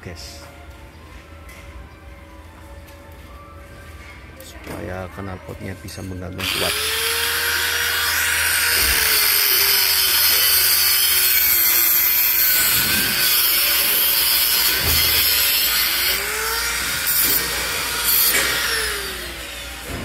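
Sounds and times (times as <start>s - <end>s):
angle grinder on metal: 6.4s - 20.0s.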